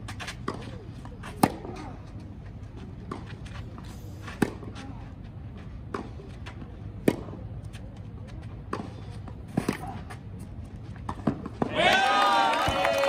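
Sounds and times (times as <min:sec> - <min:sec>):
racket hitting ball: 0:00.2 - 0:01.9, 0:04.2 - 0:04.9, 0:07.0 - 0:07.4.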